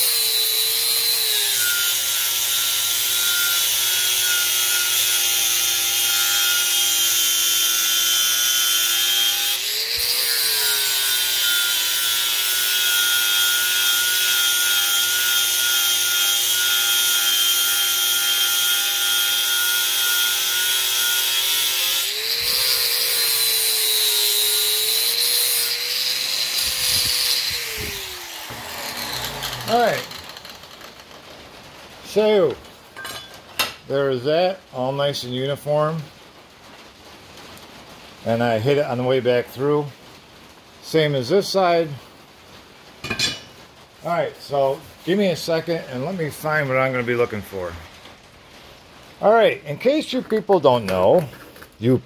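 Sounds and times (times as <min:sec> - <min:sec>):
angle grinder on steel: 0:00.0 - 0:31.2.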